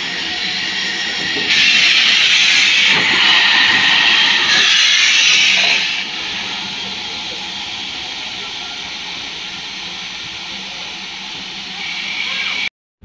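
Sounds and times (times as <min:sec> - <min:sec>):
steam locomotive hissing: 0:00.0 - 0:12.7.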